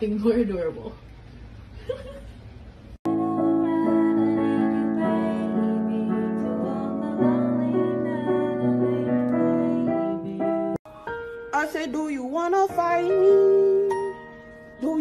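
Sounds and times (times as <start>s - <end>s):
piano slow held chords: 3.1s - 15.0s.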